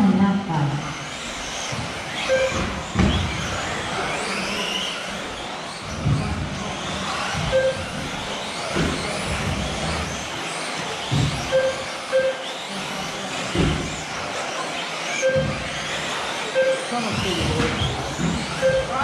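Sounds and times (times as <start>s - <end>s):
electric motors whining: 0.0s - 19.0s
short electronic beeps: 2.2s - 2.7s, 7.5s - 7.9s, 11.5s - 12.6s, 15.2s - 15.7s, 16.5s - 17.2s, 18.6s - 19.0s.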